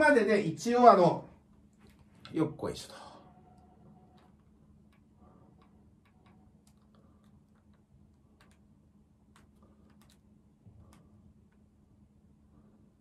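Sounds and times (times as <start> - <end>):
low hum: 1.2 - 13.0
faint irregular clicks: 3.6 - 11.8.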